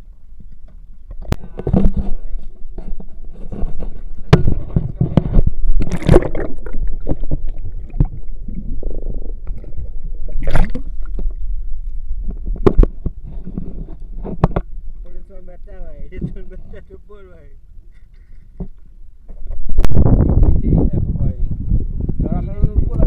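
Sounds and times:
knocks and scrapes on wooden deck: 1.4 - 5.6, 12.6 - 14.7.

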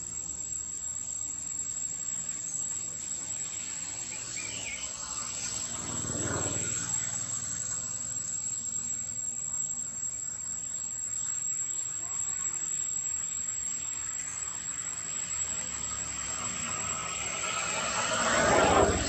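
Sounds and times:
outdoor hiss: 0.0 - 6.1
high insect drone: 0.0 - 19.0.

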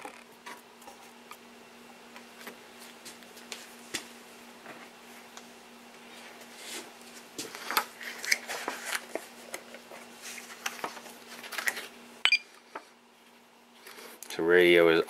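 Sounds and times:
clicks and rustles of handling: 7.4 - 12.0.

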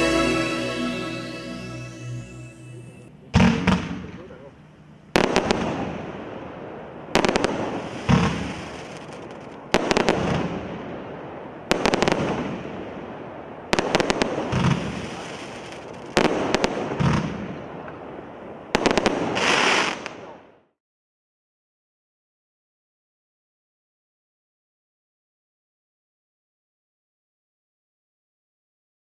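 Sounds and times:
crackle of bursting stars: 0.0 - 3.1, 7.1 - 10.9, 11.5 - 17.0
firework barrage bangs: 7.2 - 11.1.

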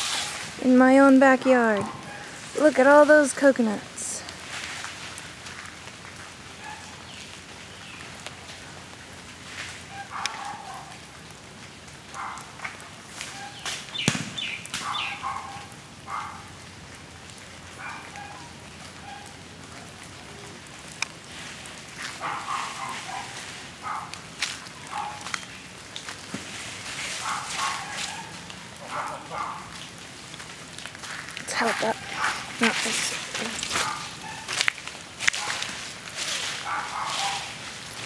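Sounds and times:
steady hiss: 0.0 - 1.1.

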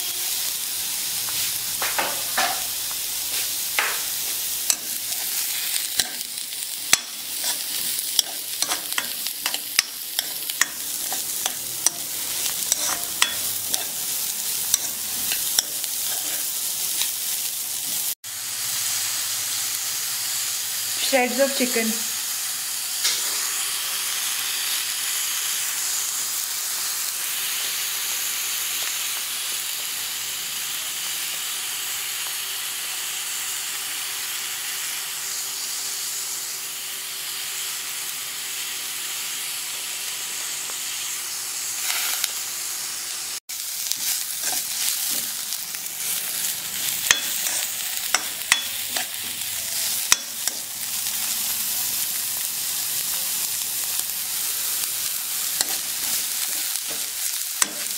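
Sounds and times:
food sizzling in hot oil: 0.0 - 57.9
ladle clinking and scraping wok: 6.9 - 17.0, 43.9 - 45.4, 46.0 - 50.7, 55.6 - 57.9.

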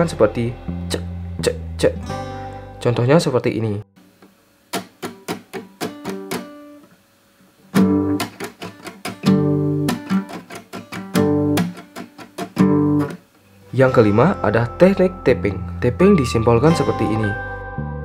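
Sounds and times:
muted acoustic guitar strums: 4.7 - 6.8, 7.7 - 13.3.

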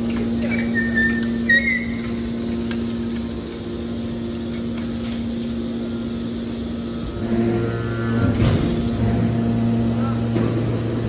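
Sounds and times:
hydraulic power unit humming: 0.0 - 11.0
metal squealing: 0.3 - 2.5.

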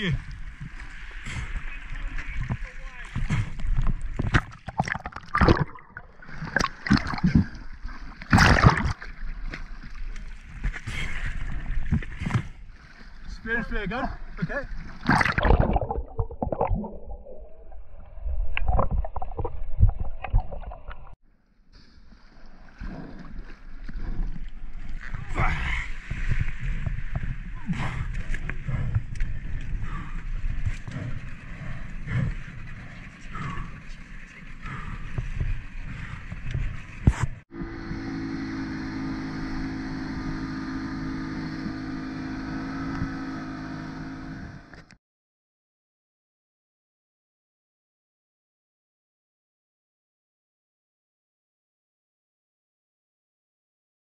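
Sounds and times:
water gurgling: 0.0 - 10.0, 14.5 - 21.2
water sloshing at the surface: 0.0 - 13.4
sea water splashing: 0.0 - 21.2, 21.8 - 44.9
outboard motor running: 36.9 - 45.0.

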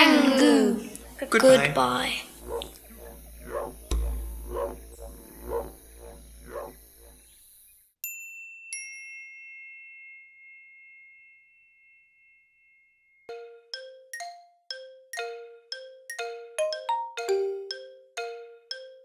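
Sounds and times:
steady hiss and hum: 0.0 - 7.7.

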